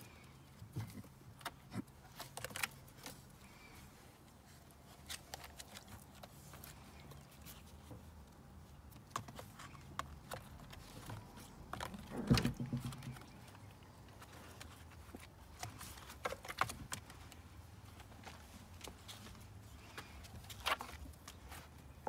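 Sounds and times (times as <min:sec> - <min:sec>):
knocks and thud: 0:12.0 - 0:13.2.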